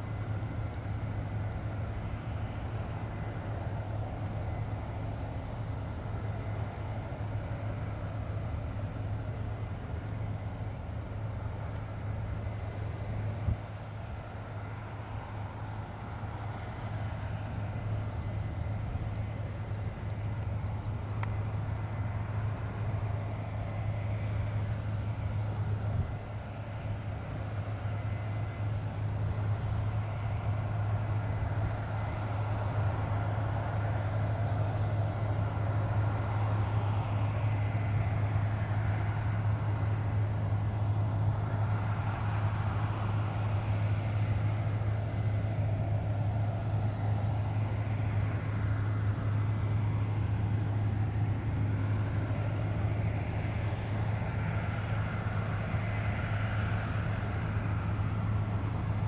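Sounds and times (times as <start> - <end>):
combine harvester engine drone: 0.0 - 59.0.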